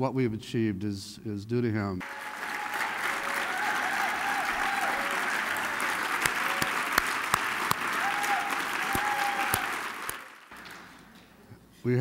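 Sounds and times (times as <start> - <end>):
audience applauding: 2.0 - 11.2
loud sharp claps close by: 2.0 - 11.2.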